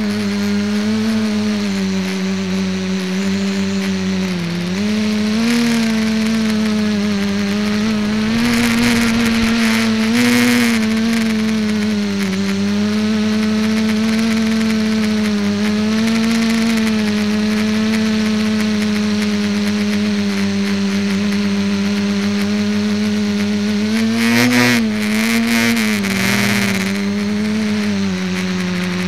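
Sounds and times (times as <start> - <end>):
drone motors humming: 2.0 - 18.7
rushing air noise: 6.2 - 12.3.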